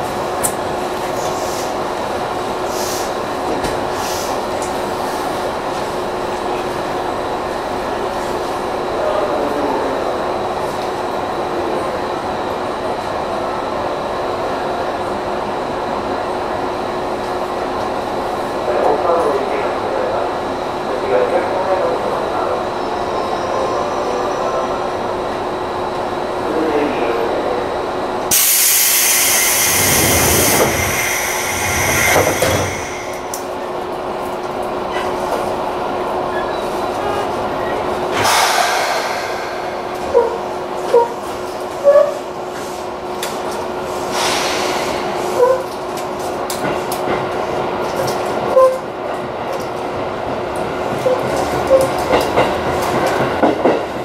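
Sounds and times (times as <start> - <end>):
electric train hum: 0.0 - 54.0
short air hiss: 28.3 - 33.4, 38.2 - 40.5.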